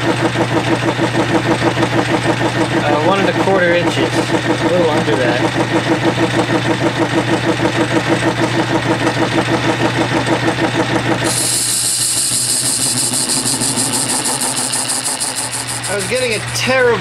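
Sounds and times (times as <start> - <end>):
metal lathe turning with pulsing beat: 0.0 - 17.0
steady rest chattering: 2.3 - 8.3, 10.9 - 17.0.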